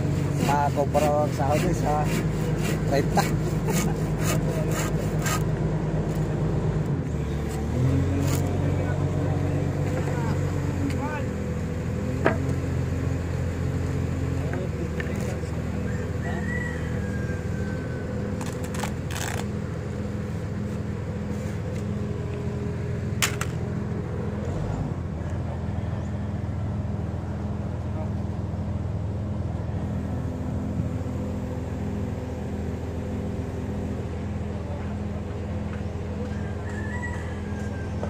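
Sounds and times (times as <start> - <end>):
machine engine running: 0.0 - 38.0.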